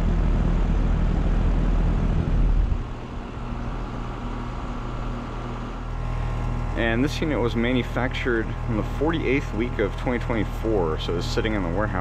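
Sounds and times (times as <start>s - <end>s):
air conditioner low hum: 0.0s - 12.0s
condenser fan blowing air: 0.0s - 12.0s.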